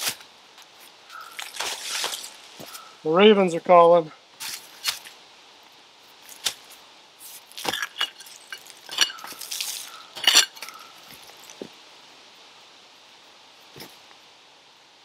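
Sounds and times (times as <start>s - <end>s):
shovel chopping and scraping soil: 0.0s - 0.2s, 1.2s - 2.8s, 4.4s - 5.1s, 6.3s - 11.6s
shovel clinking on rocks: 7.5s - 11.6s.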